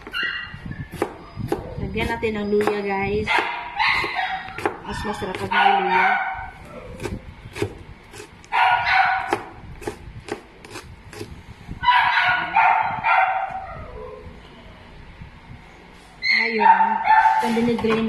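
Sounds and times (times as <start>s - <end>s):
knife chopping on cutting board: 1.0s - 5.5s, 7.0s - 8.3s, 9.2s - 11.3s
dog barking: 3.3s - 4.8s, 5.4s - 6.9s, 8.5s - 9.5s, 11.8s - 14.2s, 16.4s - 17.6s.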